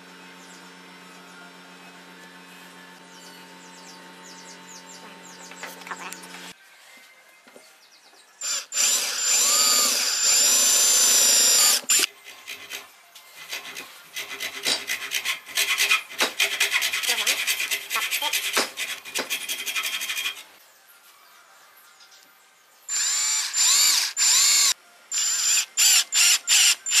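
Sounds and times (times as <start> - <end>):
electric drill boring wood: 8.4 - 18.6, 22.9 - 27.0
hacksaw cutting wood: 8.6 - 20.5.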